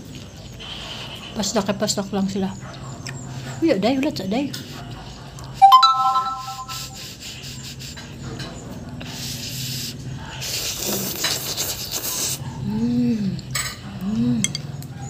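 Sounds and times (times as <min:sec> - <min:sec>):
noodle slurping: 0:10.4 - 0:12.4.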